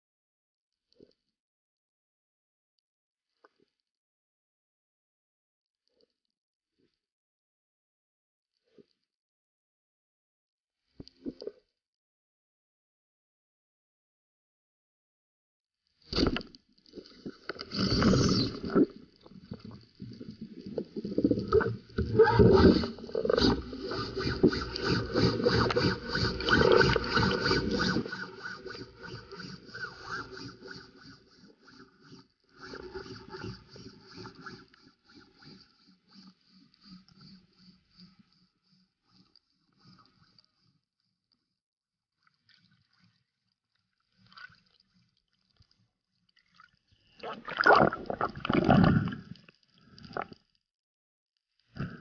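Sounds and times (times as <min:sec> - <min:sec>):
underwater water rushing: 0:17.2 - 0:35.2, 0:47.2 - 0:49.4.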